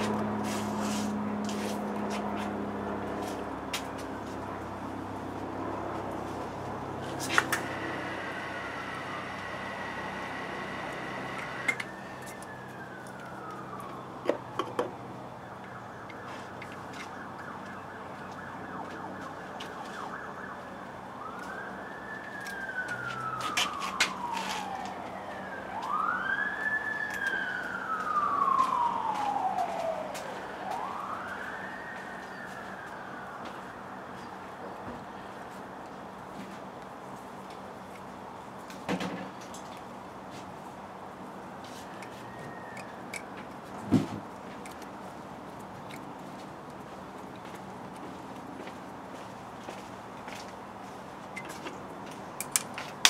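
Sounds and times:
siren wailing: 6.8 - 34.0, 41.8 - 43.8.

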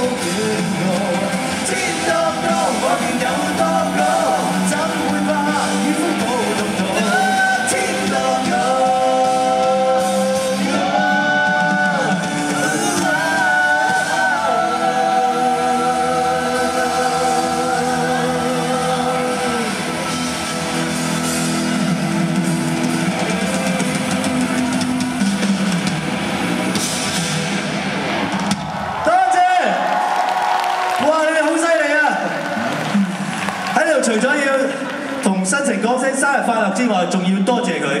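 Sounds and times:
person singing long notes: 0.0 - 20.2
live rock band playing: 0.0 - 29.0.

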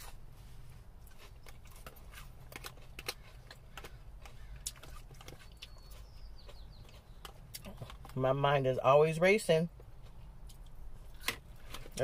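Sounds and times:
low steady hum: 0.0 - 12.0
chewing crunches: 1.0 - 8.2, 9.8 - 12.0.

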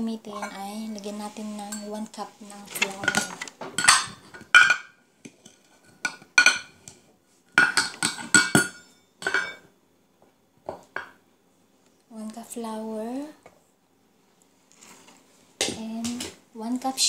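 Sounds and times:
metal cup clinking against pot: 2.8 - 4.9, 7.6 - 9.7.

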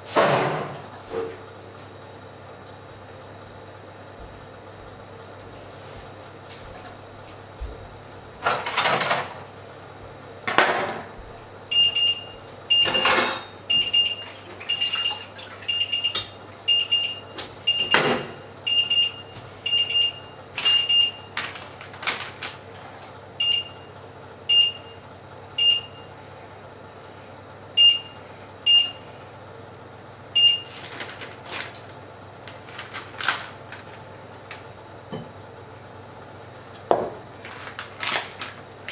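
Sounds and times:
plastic packet crinkling: 21.4 - 22.6, 30.8 - 34.6, 37.3 - 38.9.

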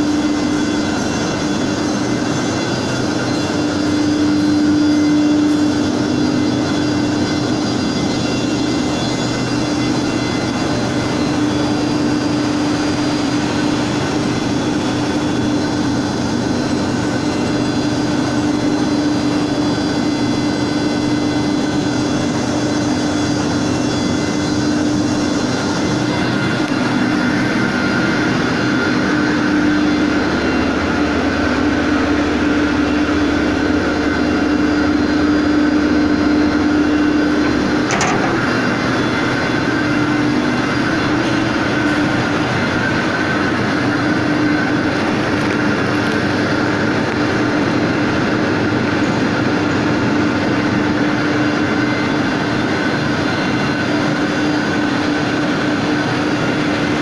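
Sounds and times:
machinery humming: 0.0 - 57.0
short click: 37.9 - 38.6.

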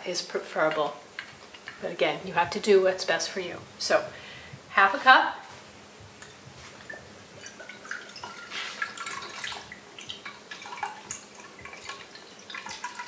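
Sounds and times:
liquid gurgling: 7.3 - 13.0
liquid pouring into metal cup: 7.4 - 13.0.

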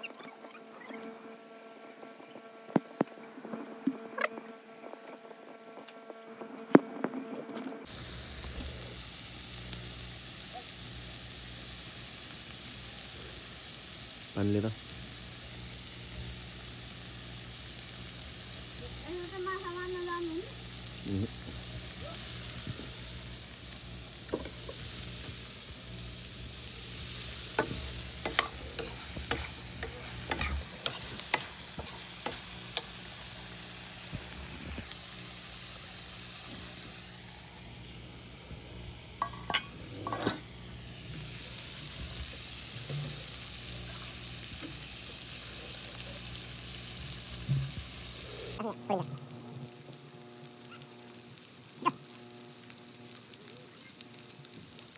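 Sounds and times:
chicken sizzling in a wok: 7.8 - 54.9
metal spatula scraping pan: 27.6 - 32.9.

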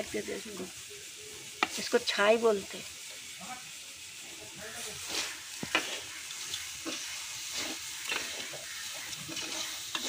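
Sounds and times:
light sizzle: 0.0 - 10.0
metal spoon scraping a pan: 4.8 - 10.0.

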